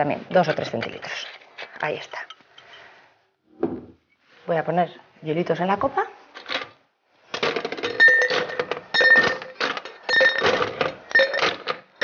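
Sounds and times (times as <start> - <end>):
ice cubes clinking into glass: 7.4 - 12.0
glass ringing: 7.8 - 11.6.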